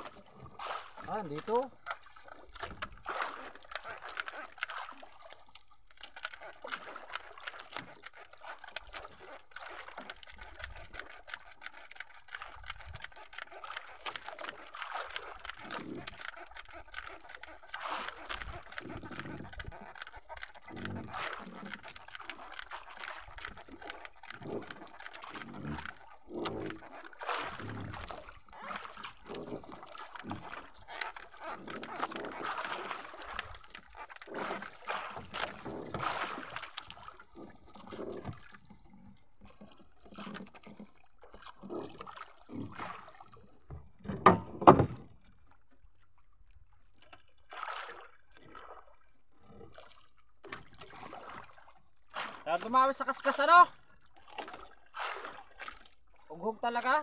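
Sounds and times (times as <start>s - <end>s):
water splashing around boat: 0.0s - 57.0s
knocks on boat hull: 44.1s - 45.0s.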